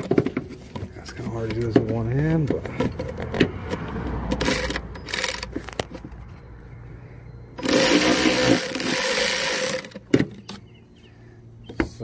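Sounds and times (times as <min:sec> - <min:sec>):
electric ratchet motor whirring: 0:07.6 - 0:10.0.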